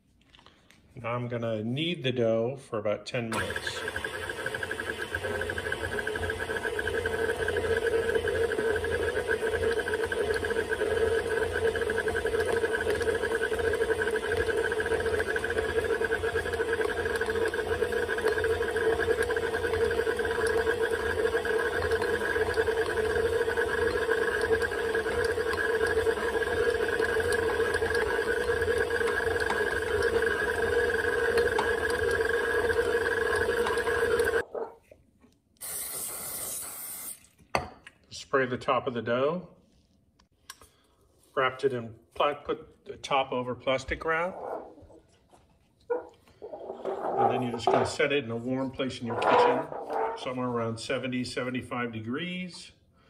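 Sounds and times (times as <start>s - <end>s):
stand mixer motor whining: 3.3s - 34.5s.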